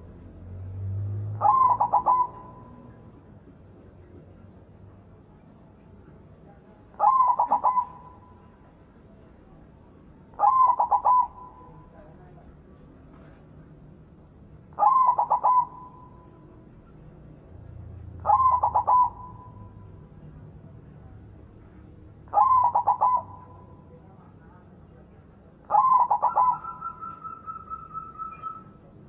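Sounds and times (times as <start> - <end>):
dove cooing: 1.2 - 3.4, 6.9 - 8.6, 10.2 - 12.0, 14.7 - 17.0, 18.0 - 20.0, 22.2 - 24.0, 25.7 - 28.8.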